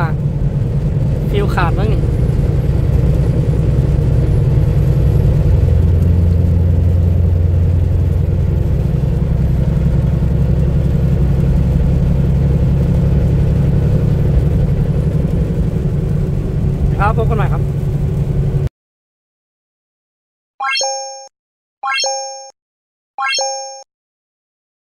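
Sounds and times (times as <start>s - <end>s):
road noise: 0.0s - 18.7s
truck diesel engine drone: 0.0s - 18.7s.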